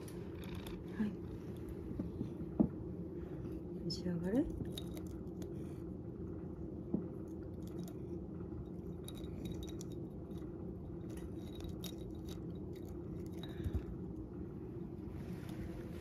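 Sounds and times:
cat crunching dried fish: 0.0s - 2.3s, 4.5s - 5.9s, 7.1s - 14.3s
steady low hum: 0.0s - 16.0s.

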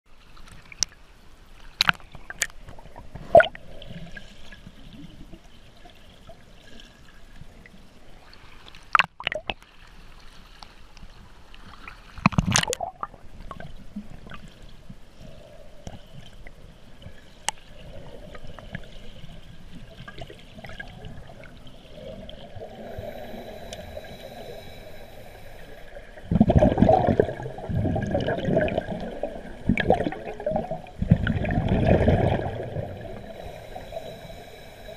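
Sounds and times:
muffled underwater wash: 0.1s - 34.9s
scuba exhaled bubbles: 19.9s - 34.9s
water sloshing and splashing: 25.9s - 33.5s.

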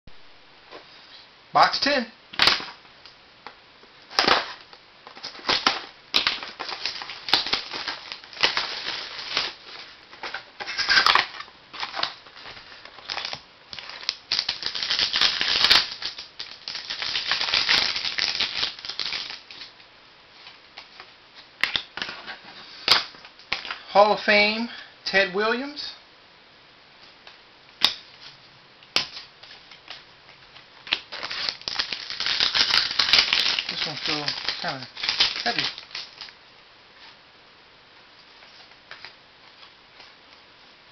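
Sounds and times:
packaging being torn open: 2.4s - 2.8s, 4.1s - 9.6s, 10.3s - 19.7s, 30.9s - 36.4s
wrapper crinkling and rustling: 4.1s - 19.7s, 29.0s - 36.4s
cards being handled: 27.8s - 36.3s.

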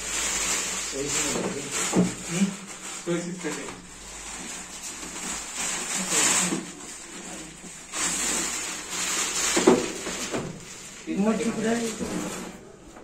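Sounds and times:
plastic wrap rustling: 0.0s - 13.0s.

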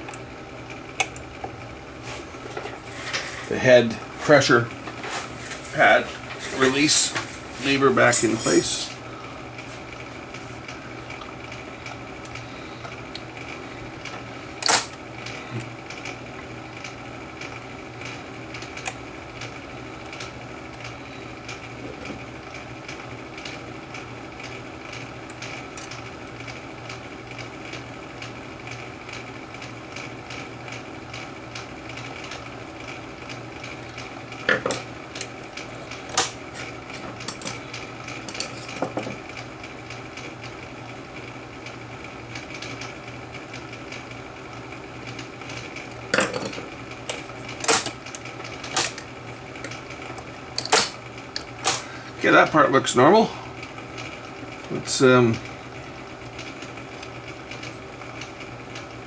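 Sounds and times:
steady hum: 0.0s - 59.0s.

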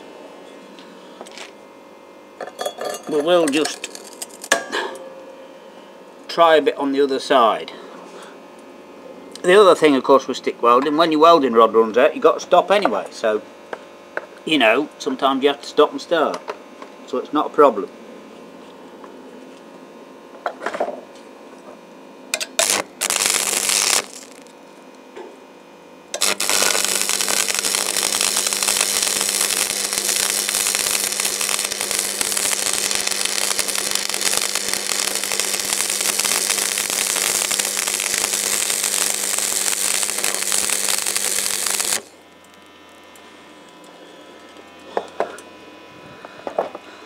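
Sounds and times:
welding arc crackling: 2.4s - 5.1s, 22.3s - 24.9s, 25.7s - 45.2s
electrode striking: 22.4s - 24.5s, 26.2s - 42.1s.

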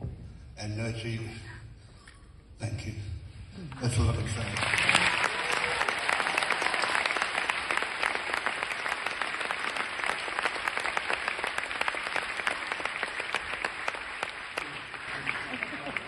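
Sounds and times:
audience applauding: 3.9s - 16.0s.

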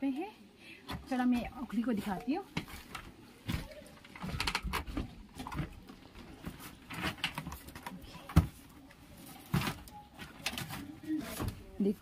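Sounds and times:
footsteps: 0.9s - 7.6s.

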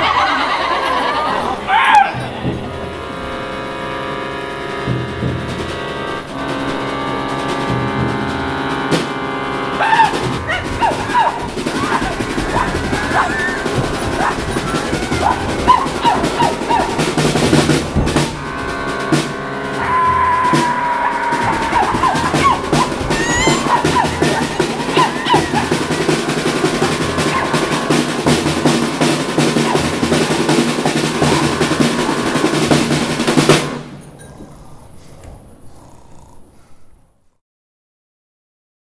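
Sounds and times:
small live band playing: 0.0s - 34.0s
fast snare drum roll: 4.9s - 33.9s.

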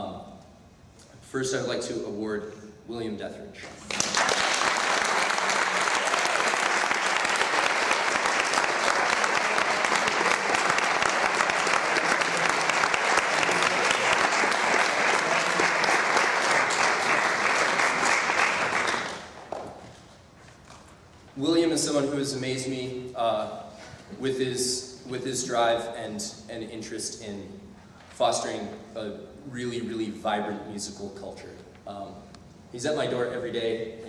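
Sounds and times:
audience applauding: 3.8s - 19.7s.

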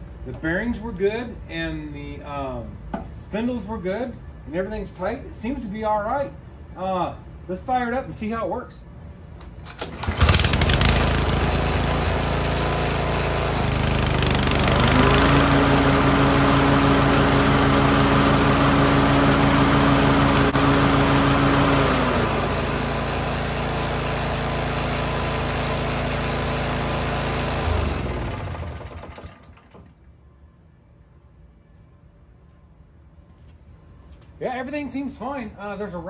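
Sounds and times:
recoil starter rattle: 9.7s - 16.8s
lawn mower engine running: 9.7s - 29.9s.

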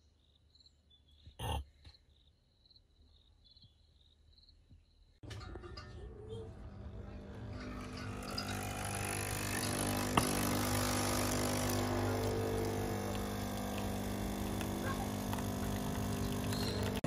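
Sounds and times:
coffee machine pump buzzing: 6.6s - 17.0s
coffee streaming into mug: 8.0s - 17.0s.

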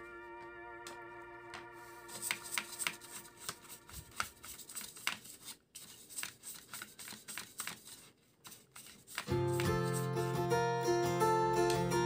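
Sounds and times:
brush scrubbing plastic: 2.0s - 10.1s.

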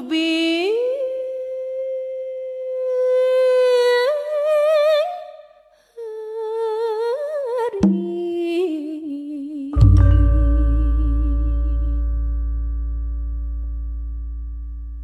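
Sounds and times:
struck percussion with low ring: 9.8s - 15.0s.

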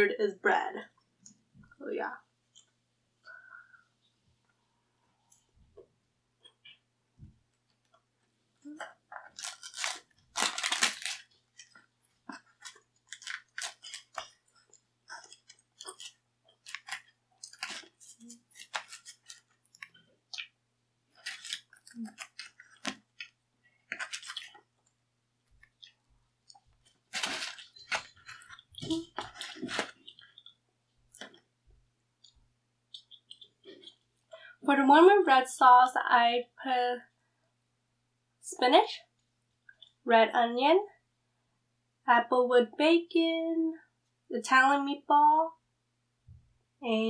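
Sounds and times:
crust crackling: 8.6s - 31.5s
pizza being chewed: 8.6s - 31.5s.

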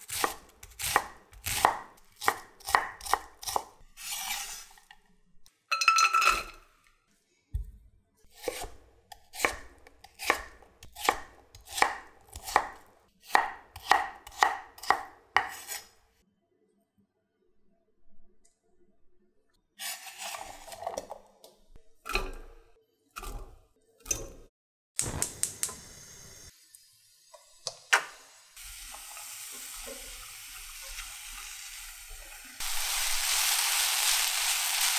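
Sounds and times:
knife chopping on wooden board: 0.1s - 3.7s, 8.4s - 15.8s.

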